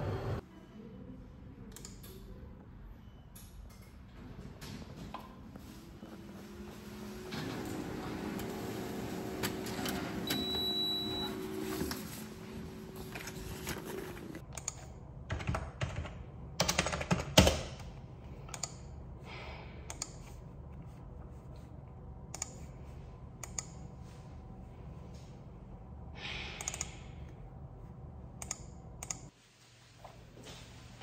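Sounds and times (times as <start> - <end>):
steady low hum: 17.8 - 31.0.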